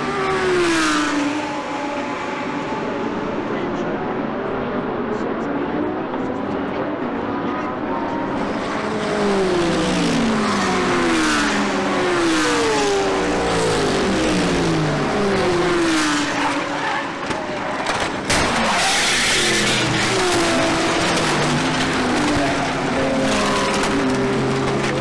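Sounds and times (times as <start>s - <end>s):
race car engines passing: 0.0s - 25.0s
tyres skidding: 8.4s - 25.0s
crash bang and clatter: 17.2s - 25.0s.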